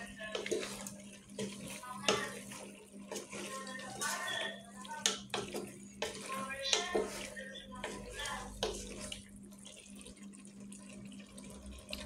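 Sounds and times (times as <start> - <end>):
spatula scraping pot: 0.0 - 9.3
wet stirring in a pot: 0.0 - 12.0.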